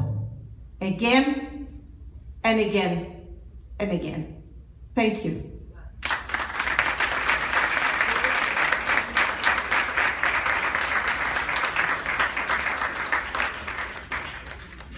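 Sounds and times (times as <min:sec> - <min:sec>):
audience applauding: 0:06.0 - 0:14.9.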